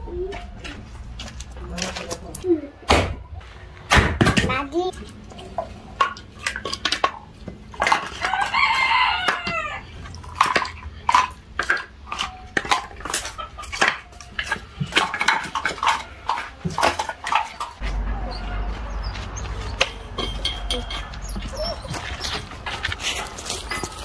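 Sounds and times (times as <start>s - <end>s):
rooster crowing: 8.2s - 9.9s
firewood pieces clattering: 10.1s - 17.8s.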